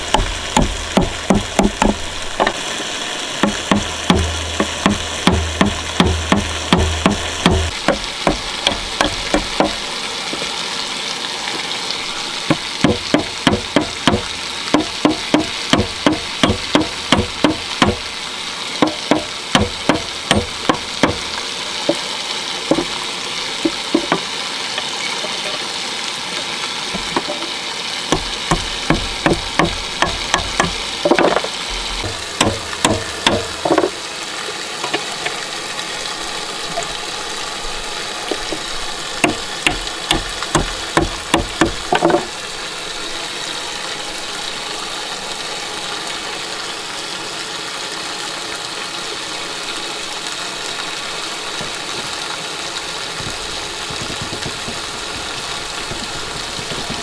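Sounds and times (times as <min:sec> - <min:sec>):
steady hiss: 0:00.0 - 0:57.0
sharp rapid knocks: 0:00.1 - 0:02.6, 0:03.4 - 0:09.8, 0:12.5 - 0:18.0, 0:18.8 - 0:21.3, 0:22.7 - 0:22.9, 0:28.1 - 0:33.9, 0:39.2 - 0:42.3.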